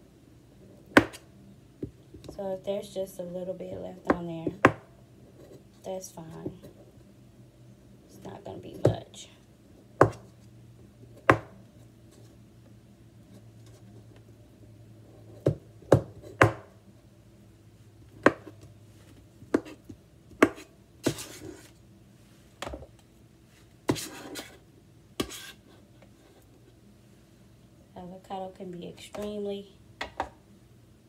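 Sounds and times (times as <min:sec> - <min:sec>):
knife blade scraping: 0:25.2 - 0:25.6.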